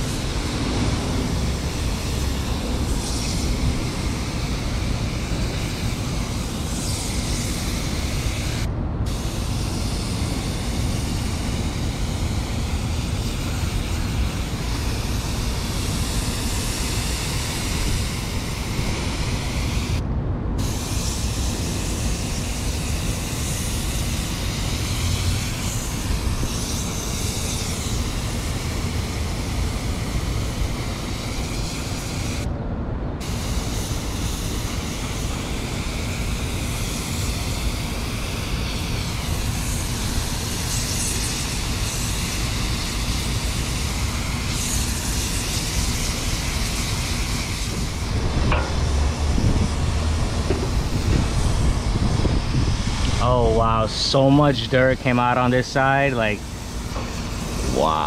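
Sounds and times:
low rumble: 0.0s - 4.4s, 47.7s - 53.8s
water spray hiss: 0.0s - 20.0s, 20.6s - 32.5s, 33.2s - 58.0s.

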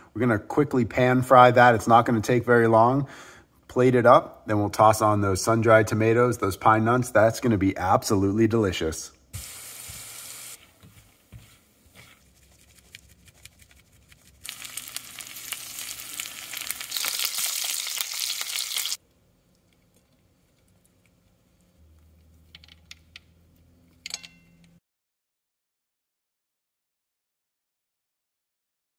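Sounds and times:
fish frying in oil: 14.4s - 19.0s
nuts sizzling in butter: 14.4s - 19.0s.

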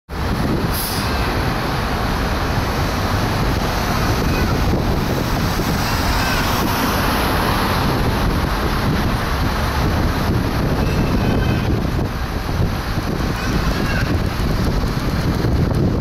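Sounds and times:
city street traffic: 0.1s - 16.0s
wind rumbling on microphone: 0.1s - 16.0s.

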